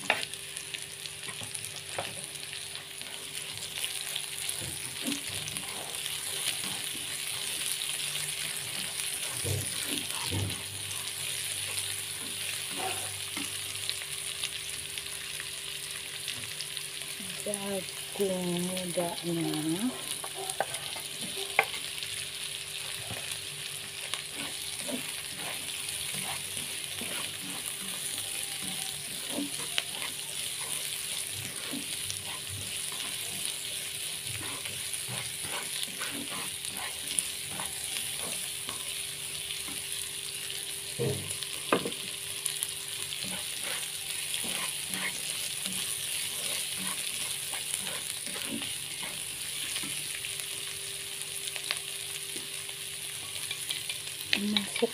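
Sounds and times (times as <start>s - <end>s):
vegetables sizzling in oil: 0.0s - 54.9s
spatula clatter: 24.3s - 33.7s, 34.3s - 38.9s, 43.2s - 50.0s.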